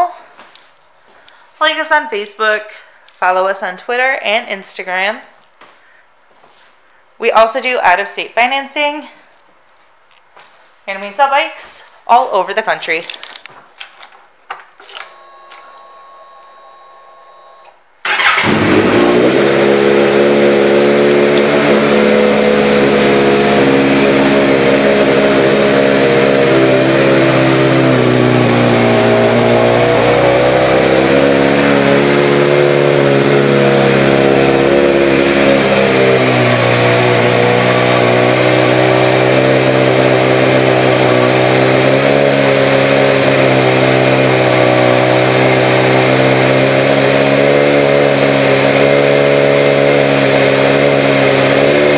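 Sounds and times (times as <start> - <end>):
faint ignition whine: 14.8 - 51.9.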